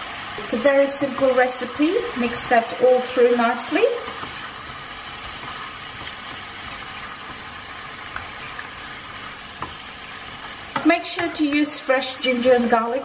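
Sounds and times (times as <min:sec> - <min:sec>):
vegetables sizzling in a frying pan: 0:00.0 - 0:13.0
spatula stirring: 0:00.4 - 0:12.5
light spatula taps: 0:08.1 - 0:08.7.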